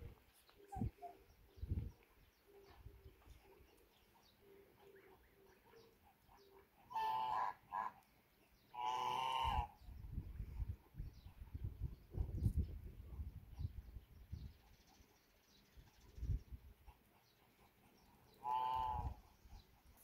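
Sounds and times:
waterfowl honking: 6.9s - 8.0s, 8.8s - 9.8s, 18.4s - 19.2s.

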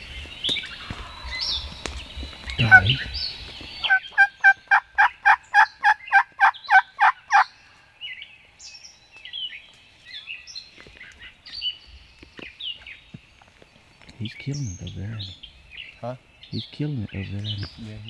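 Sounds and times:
songbirds chirping faintly: 0.0s - 18.0s
wild turkey yelps: 3.8s - 7.5s.

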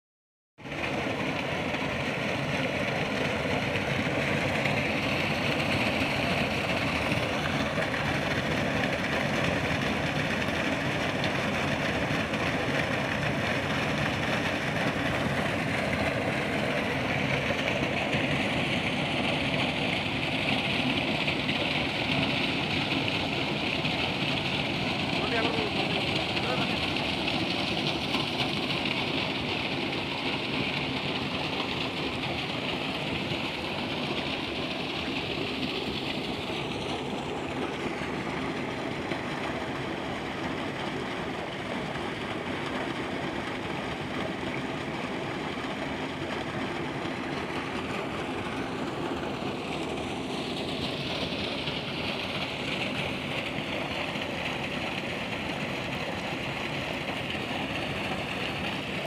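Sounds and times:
water gushing into a tank: 0.6s - 59.0s.

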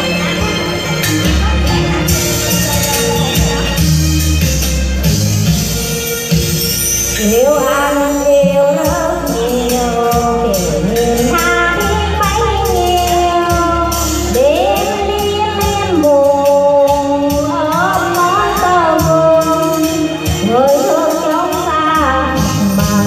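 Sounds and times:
backing track with percussion beat: 0.0s - 23.0s
woman singing: 7.2s - 23.0s.

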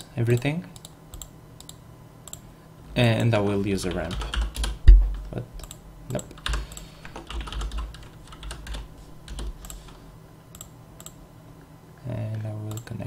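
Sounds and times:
computer keyboard typing: 3.8s - 4.8s, 5.6s - 10.0s.

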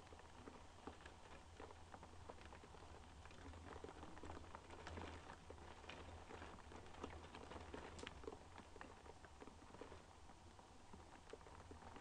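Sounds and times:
rain on a window: 0.0s - 12.0s.

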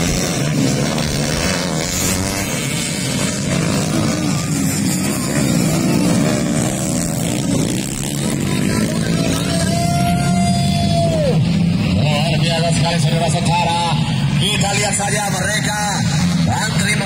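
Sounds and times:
dirt bike engines racing past: 0.0s - 17.0s.

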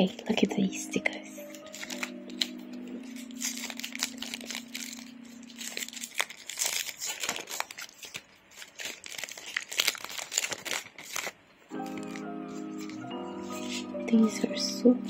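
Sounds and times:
plastic sleeves crinkling: 0.0s - 14.8s.

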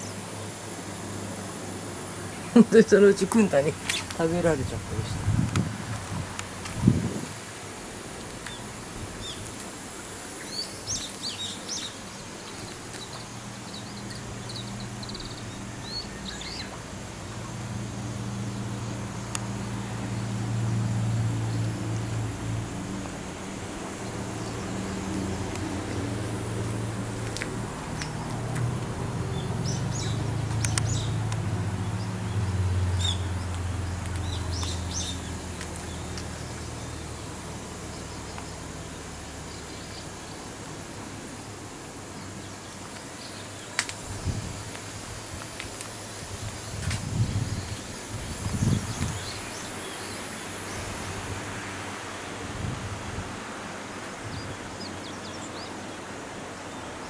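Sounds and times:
steady hiss: 0.0s - 57.0s
small birds chirping: 2.2s - 6.9s, 8.1s - 17.6s, 29.2s - 40.4s, 42.0s - 51.2s
low rumbles on microphone: 4.6s - 7.4s, 46.4s - 49.4s.

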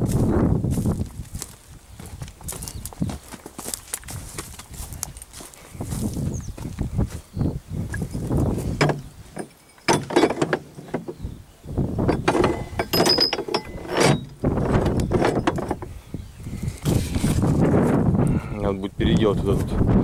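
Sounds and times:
metal hitch clunking and rattling: 7.9s - 11.3s, 12.0s - 16.0s.

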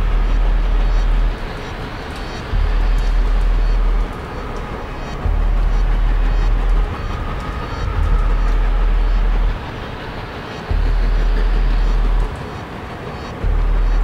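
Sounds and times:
deep sustained bass notes: 0.0s - 1.5s, 2.5s - 4.2s, 4.8s - 9.8s, 10.7s - 12.4s, 13.4s - 14.0s
dark dense wash of sound: 0.0s - 14.0s.

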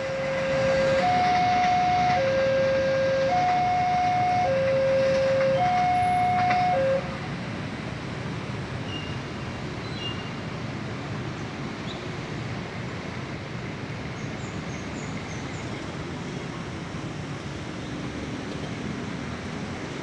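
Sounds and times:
distant vehicles rumbling: 0.0s - 9.7s.

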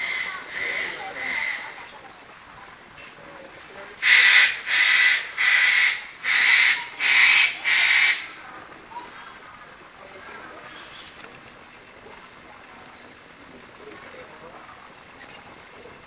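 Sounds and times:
animal harsh hissing calls: 0.0s - 1.8s, 4.0s - 8.4s.

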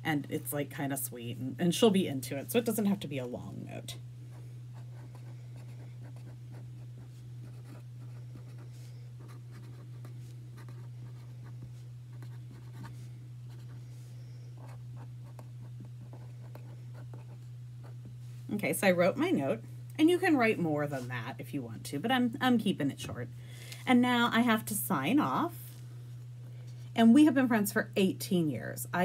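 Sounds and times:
low hum: 0.0s - 29.0s
pen scratching on paper: 4.8s - 12.9s, 14.6s - 18.0s.

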